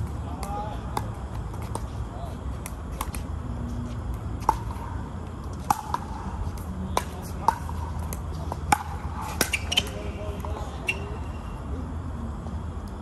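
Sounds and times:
steady low rumble: 0:00.0 - 0:13.0
ball bouncing on court: 0:00.1 - 0:04.9, 0:05.5 - 0:11.1.

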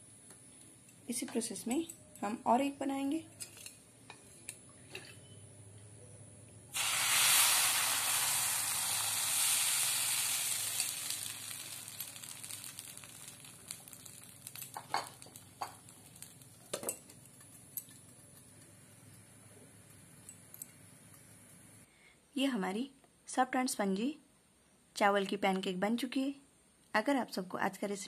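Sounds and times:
batter sizzling in a frying pan: 0:06.7 - 0:21.4.

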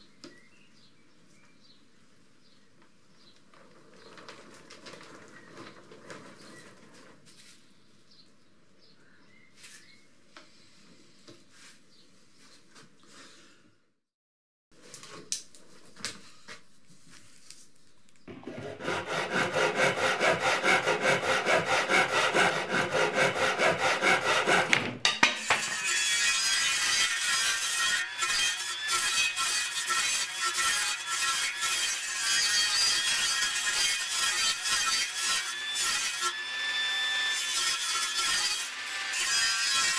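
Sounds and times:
rasping strokes on plywood: 0:18.3 - 0:24.8.

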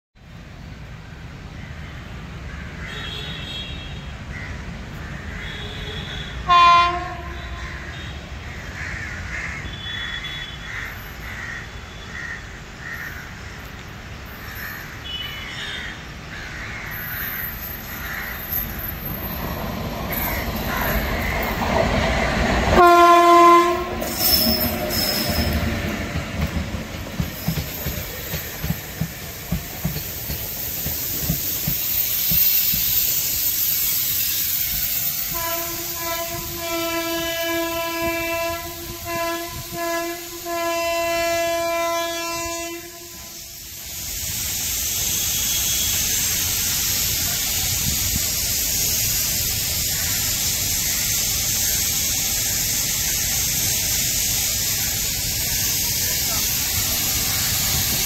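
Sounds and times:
locomotive horn blasts: 0:05.4 - 0:08.2, 0:22.7 - 0:25.6, 0:35.3 - 0:43.6, 0:45.1 - 0:46.2
train wheels clattering: 0:18.6 - 0:35.0.

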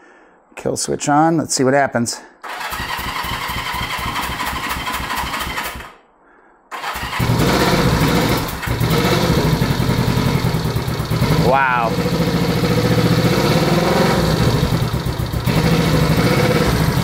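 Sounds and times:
electric starter cranking engine: 0:02.4 - 0:06.0, 0:06.7 - 0:10.2
motorcycle engine running: 0:07.2 - 0:17.0.

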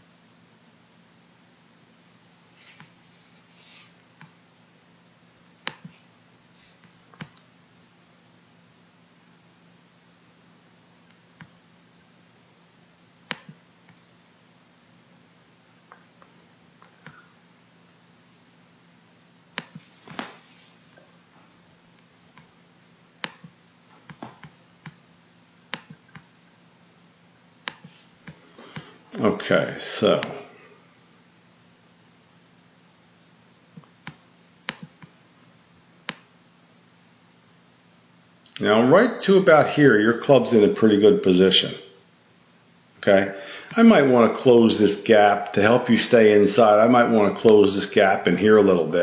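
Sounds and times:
low steady hum: 0:00.0 - 0:49.0
computer mouse clicking: 0:05.6 - 0:06.0, 0:06.8 - 0:07.5, 0:13.3 - 0:14.0, 0:19.6 - 0:19.9, 0:23.2 - 0:25.0, 0:25.7 - 0:26.3, 0:27.6 - 0:28.9, 0:33.8 - 0:35.2, 0:36.0 - 0:36.3.

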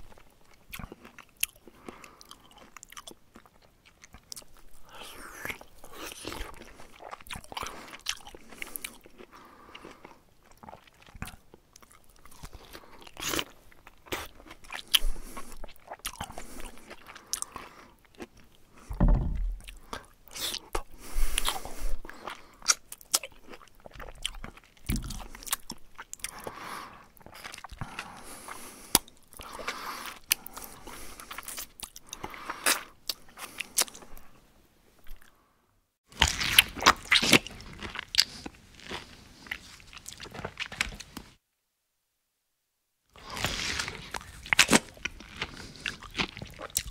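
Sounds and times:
low thump: 0:18.9 - 0:19.6
bear chewing and crunching food: 0:36.1 - 0:41.3, 0:43.2 - 0:46.9.

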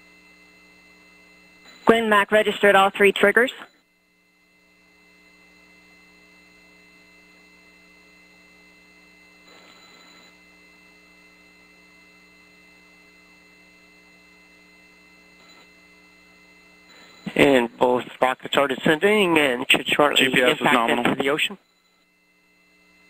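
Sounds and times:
faint electrical hum: 0:00.0 - 0:23.0
constant tones: 0:01.0 - 0:04.0, 0:14.1 - 0:23.0.

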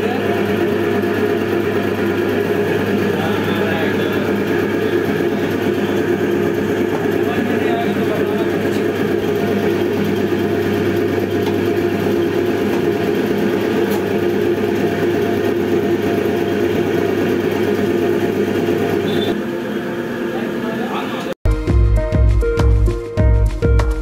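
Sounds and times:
steady mechanical drone: 0:00.0 - 0:21.3.

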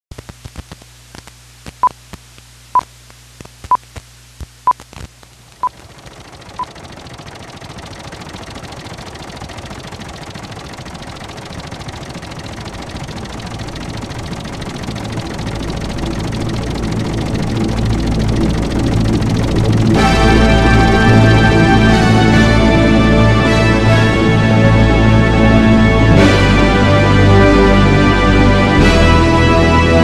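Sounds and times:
low hum: 0:00.1 - 0:30.0
broad rumbling noise: 0:10.0 - 0:28.0.

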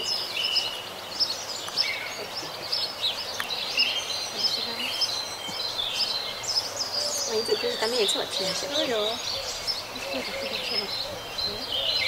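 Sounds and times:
small birds chirping and twittering: 0:00.0 - 0:12.0.

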